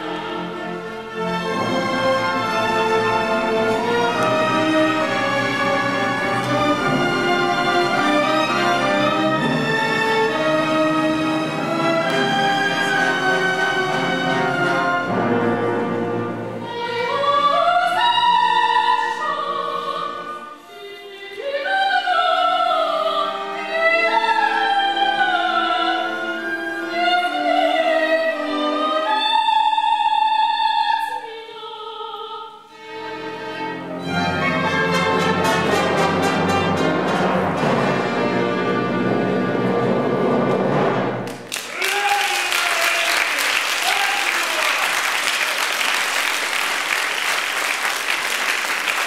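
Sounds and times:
orchestra playing: 0.0s - 21.3s, 22.3s - 29.3s, 32.7s - 41.6s
operatic singing: 0.0s - 46.6s.

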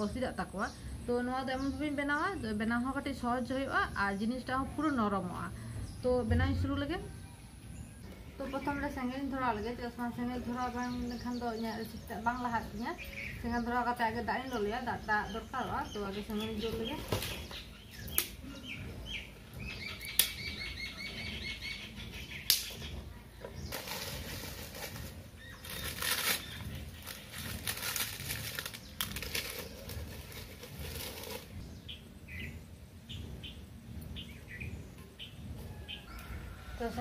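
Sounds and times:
bird chirping: 5.8s - 36.7s
sticks snapping: 18.1s - 18.4s, 20.2s - 20.4s, 22.5s - 22.8s
twigs rustling and scraping: 23.7s - 31.6s.

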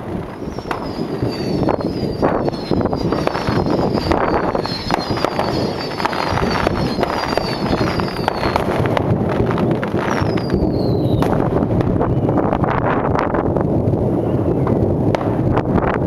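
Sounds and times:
fireworks whistling: 0.0s - 12.8s
fireworks bangs and crackle: 0.0s - 16.0s.

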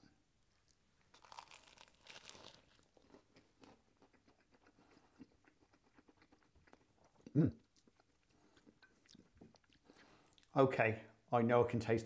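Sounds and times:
quiet chewing: 0.4s - 10.6s
crunching bite into pastry: 1.1s - 4.8s.

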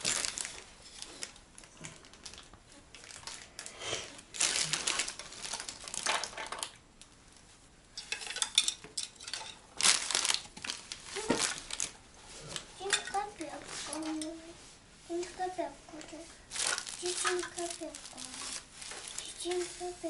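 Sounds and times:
rustling and crinkling: 0.0s - 20.0s
small objects clinking: 4.4s - 6.8s, 16.5s - 19.5s.

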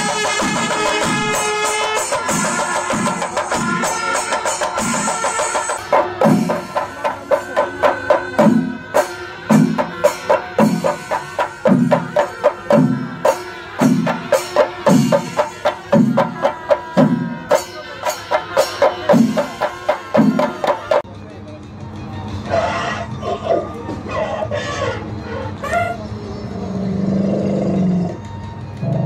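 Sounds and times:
drums beaten with sticks: 0.0s - 21.2s.

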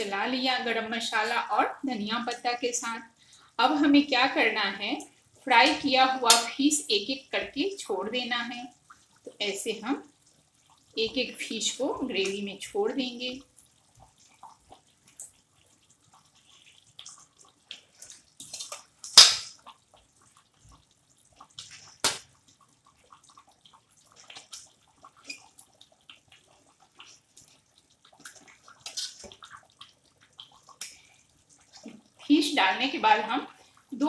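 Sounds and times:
fish plopping into gravy: 13.6s - 32.3s.

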